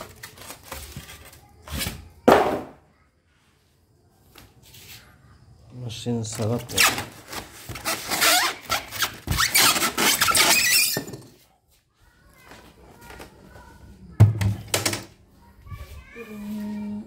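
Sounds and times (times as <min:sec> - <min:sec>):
styrofoam squeaking against cardboard: 0:06.6 - 0:11.0.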